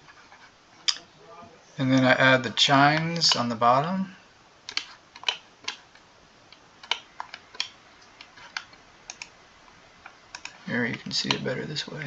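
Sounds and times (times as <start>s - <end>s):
keyboard and mouse clicks: 4.7s - 9.3s, 10.0s - 11.4s.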